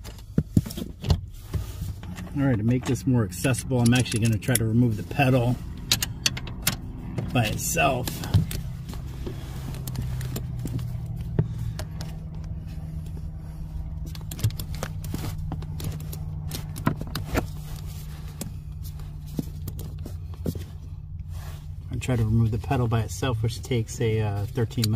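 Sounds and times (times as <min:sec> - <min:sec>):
steady low hum: 0:00.0 - 0:24.9.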